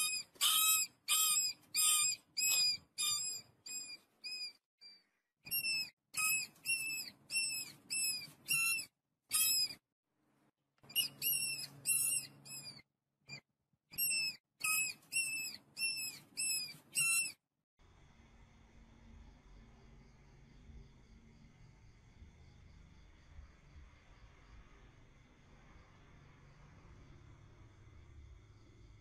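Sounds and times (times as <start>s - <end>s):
animal squeaking calls: 0.0s - 4.6s, 5.5s - 9.8s, 10.9s - 12.8s, 14.0s - 17.4s.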